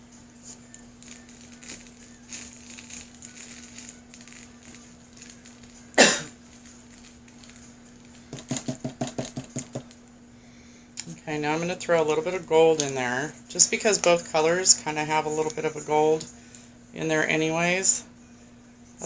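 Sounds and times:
motor humming: 0.0 - 16.8
glitter rustling: 0.4 - 8.7
glitter jar rattling: 0.7 - 10.0.

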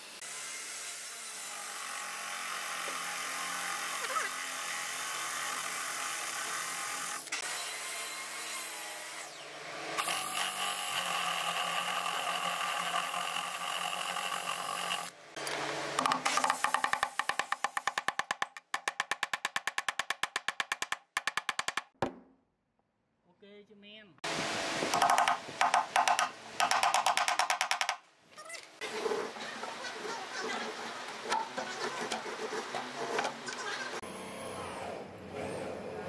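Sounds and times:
cordless drill boring into wood: 10.0 - 15.2.

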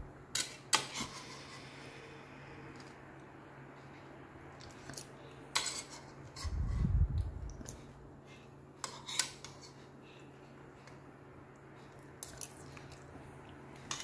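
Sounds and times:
cutlery scraping a plastic plate: 0.4 - 1.6, 8.8 - 9.8
low rumble: 6.4 - 7.6.

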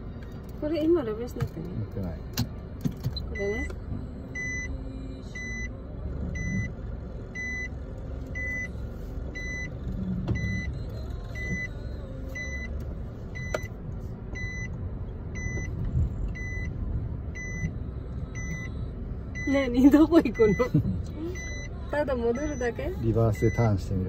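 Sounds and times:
engine and tyre rumble: 0.0 - 24.0
reverse warning beeps: 3.1 - 3.7, 4.3 - 5.7, 6.3 - 13.8, 14.4 - 24.0.

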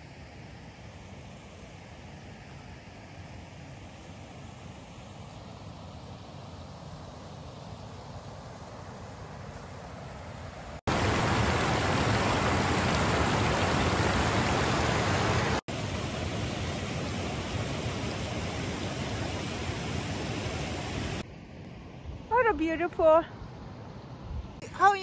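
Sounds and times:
river rushing over rocks: 10.9 - 21.2.

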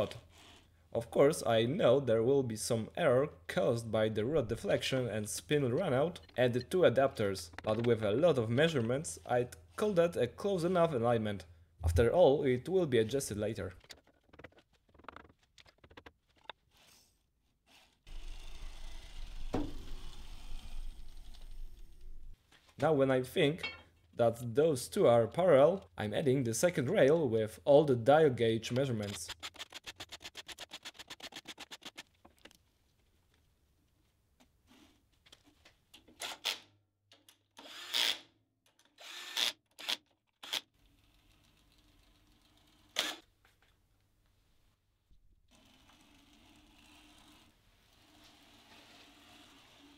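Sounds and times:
power drill driving screws: 37.6 - 38.3, 39.0 - 40.6, 42.9 - 43.2.

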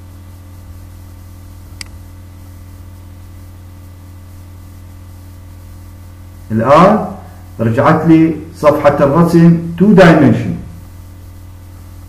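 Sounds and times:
low electrical hum and hiss: 0.0 - 12.0
computer mouse click: 1.8 - 2.0.

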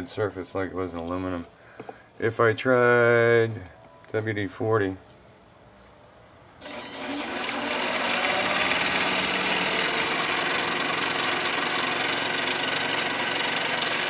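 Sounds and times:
lathe motor and gear whine: 6.6 - 14.0.

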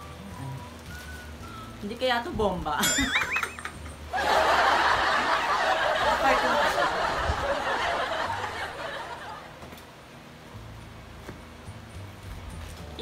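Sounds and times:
crowd laughter: 3.2 - 9.6.

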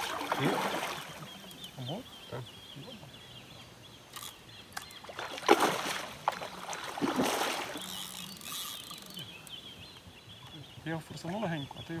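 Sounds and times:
water splashing: 0.0 - 1.6, 5.0 - 9.3.

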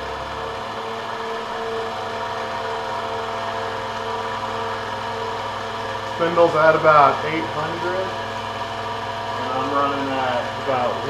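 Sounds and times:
milling machine motor hum and whine: 0.0 - 11.0.

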